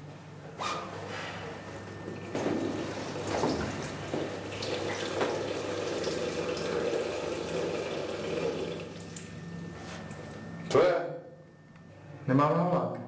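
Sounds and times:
man urinating into urinal: 2.6s - 9.4s.

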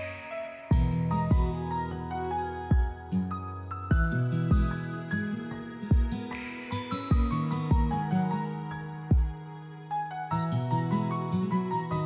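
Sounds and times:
deep drum thumps: 2.7s - 3.1s, 9.1s - 9.4s.

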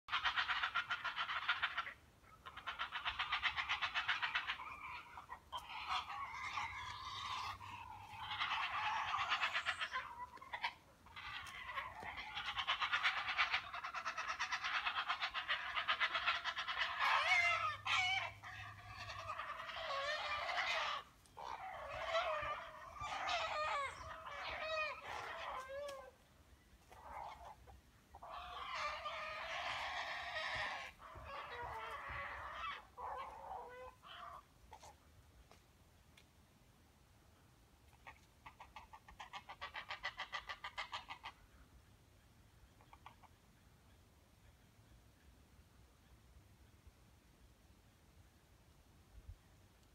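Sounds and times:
rising squawk: 2.6s - 26.2s.

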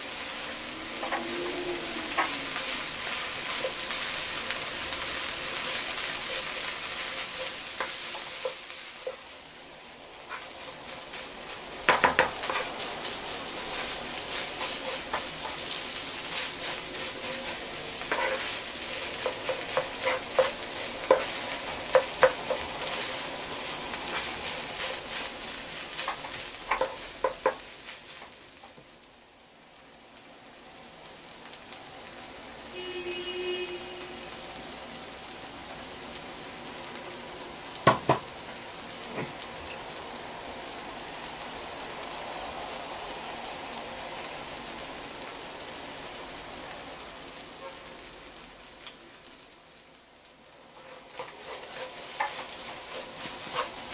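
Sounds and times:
rice sizzling in a frying pan: 0.0s - 53.9s
wooden spatula scraping a pan: 0.1s - 4.5s, 10.2s - 28.4s, 50.7s - 53.9s.

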